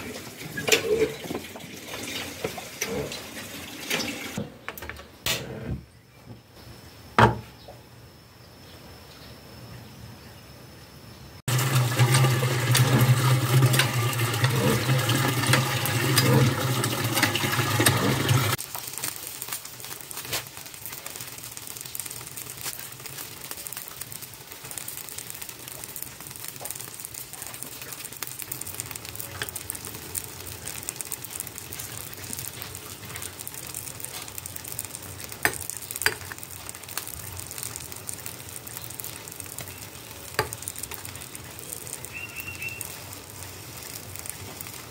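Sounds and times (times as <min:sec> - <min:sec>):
pot bubbling: 0:00.0 - 0:04.4, 0:11.5 - 0:44.9
gas burner hum: 0:11.5 - 0:44.9.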